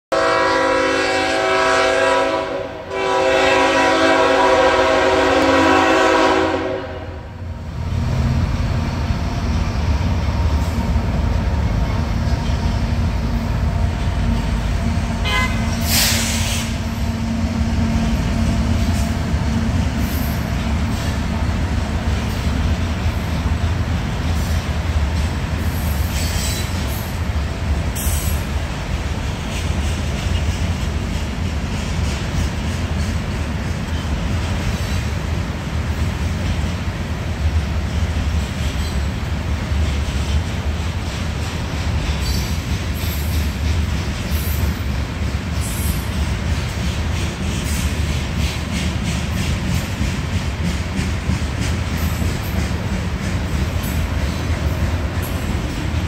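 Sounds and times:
locomotive air horn blasts: 0.1 - 7.4, 15.2 - 16.8
freight train rumbling past: 0.1 - 56.0.

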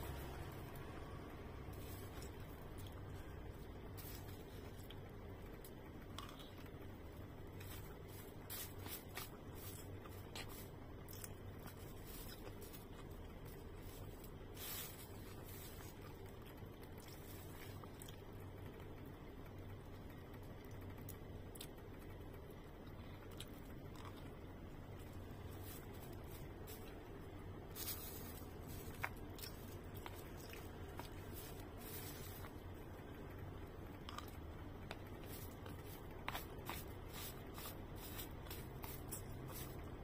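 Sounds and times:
steady low hum: 0.0 - 40.0
chewing: 4.0 - 6.8, 7.5 - 18.4, 22.8 - 24.4, 27.7 - 33.1, 33.9 - 39.8.

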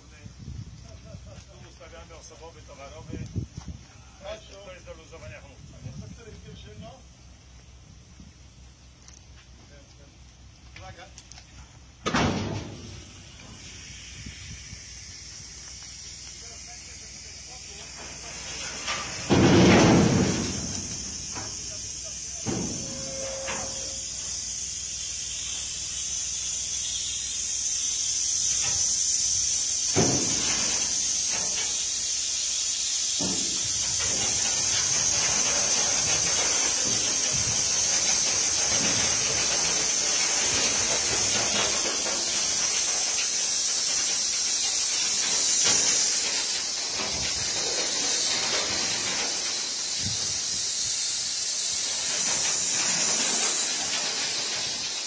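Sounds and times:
compressed air hissing: 11.3 - 55.0.

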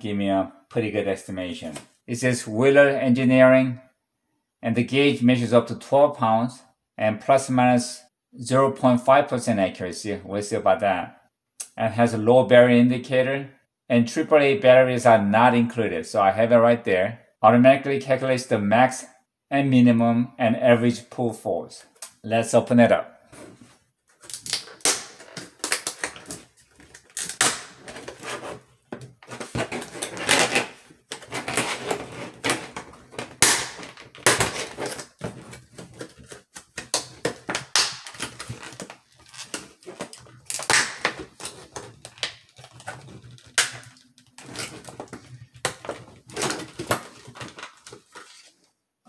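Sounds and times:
plastic blister pack crackling: 24.2 - 48.3.

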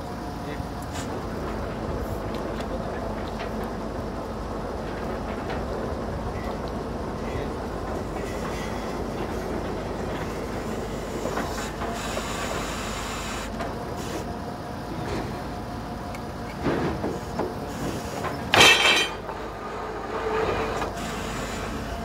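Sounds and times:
drilling rig running: 17.2 - 22.0
metallic knocks and clatters: 18.2 - 19.4.

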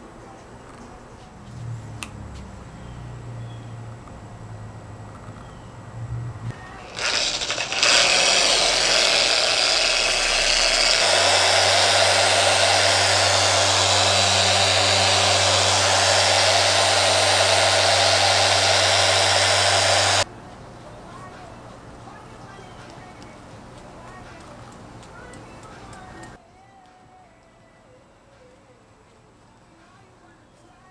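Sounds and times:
electric car polisher running: 6.8 - 20.3.

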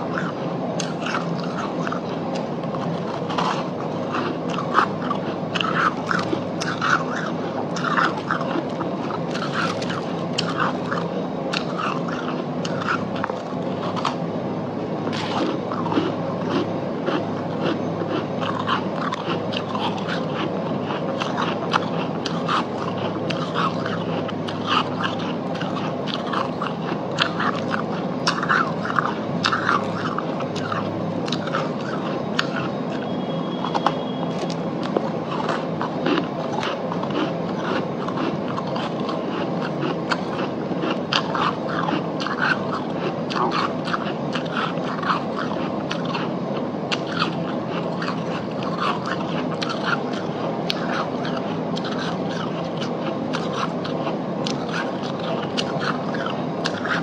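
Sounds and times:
frost being chewed: 0.0 - 57.0
steady low hum: 0.0 - 57.0.

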